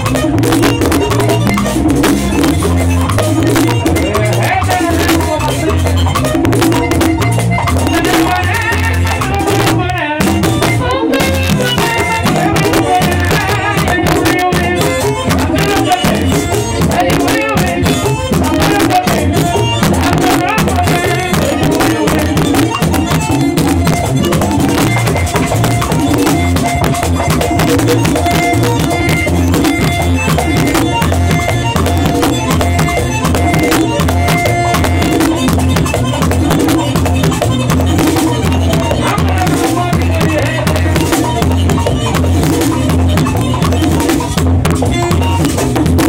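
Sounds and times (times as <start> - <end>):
drum beat: 0.0 - 46.0
melodic lead: 0.0 - 46.0.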